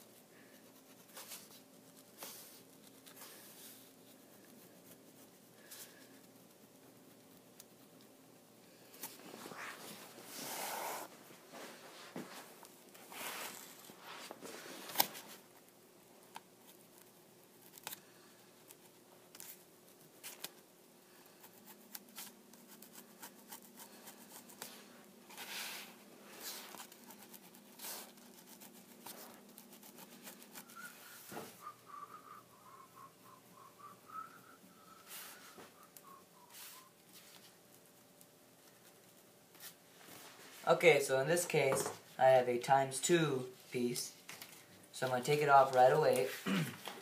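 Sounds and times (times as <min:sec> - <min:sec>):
paper rustling: 0:08.9 - 0:15.4.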